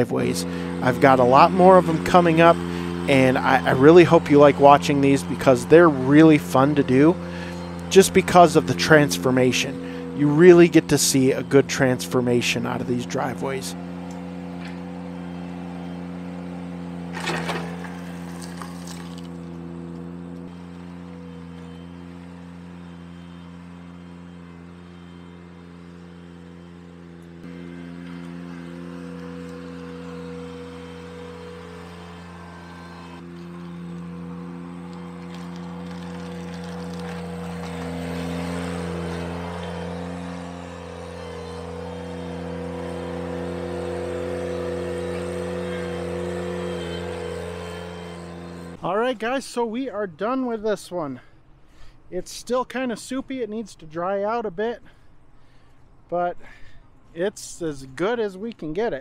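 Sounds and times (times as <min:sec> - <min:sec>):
loose gravel crunching: 0:00.0 - 0:59.0
tractor running: 0:00.0 - 0:59.0
stones crunching and rattling: 0:17.2 - 0:19.4, 0:35.2 - 0:38.1.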